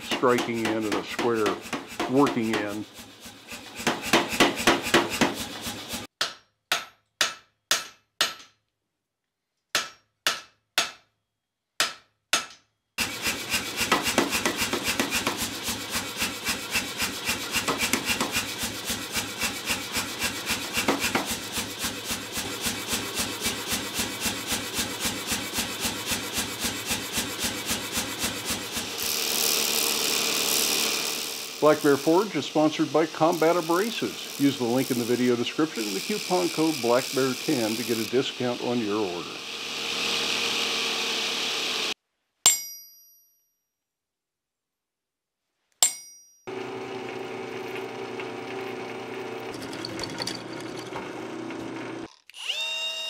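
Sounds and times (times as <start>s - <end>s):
power hammer striking steel: 0.0s - 8.6s, 13.5s - 28.9s, 45.8s - 46.3s.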